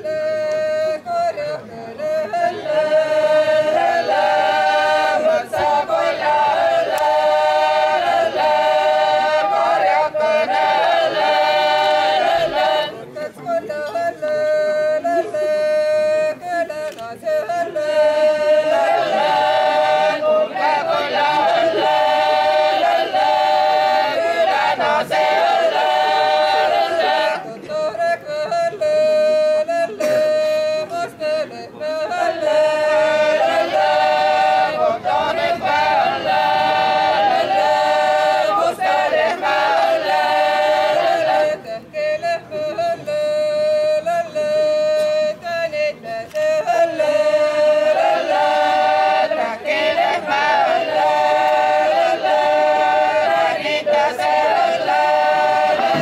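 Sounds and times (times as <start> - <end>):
women singing in polyphony: 0.0 - 56.0.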